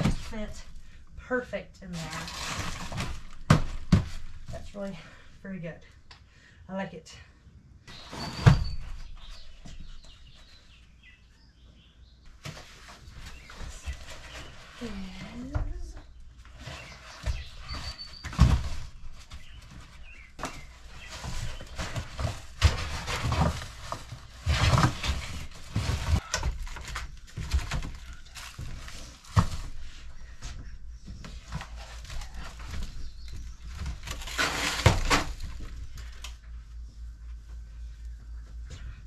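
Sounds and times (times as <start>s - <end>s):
rustling of wrapping: 1.9s - 4.8s, 12.4s - 15.5s, 16.2s - 38.3s
knocks and thuds in freezer: 2.6s - 4.7s.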